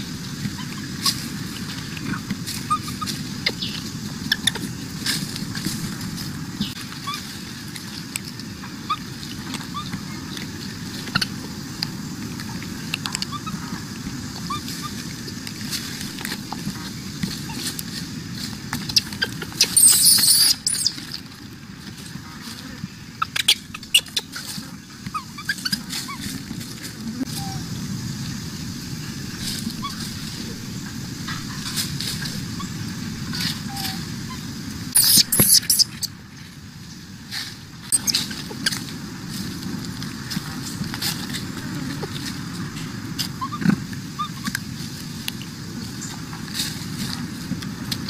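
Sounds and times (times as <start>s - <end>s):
monkeys squeaking and calling: 0.0s - 6.0s, 6.6s - 7.5s, 8.5s - 11.7s, 12.4s - 15.2s, 15.8s - 17.8s, 18.8s - 21.2s, 22.5s - 27.8s, 29.5s - 36.2s, 37.9s - 38.8s, 43.2s - 44.6s.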